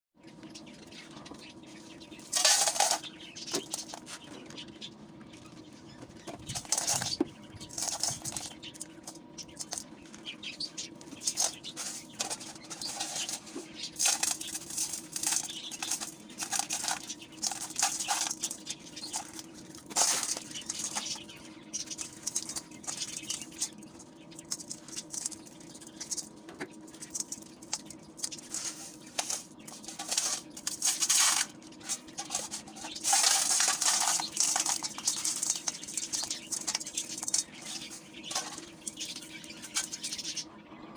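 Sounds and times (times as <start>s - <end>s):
grit pattering onto metal pot: 10.8s - 40.2s.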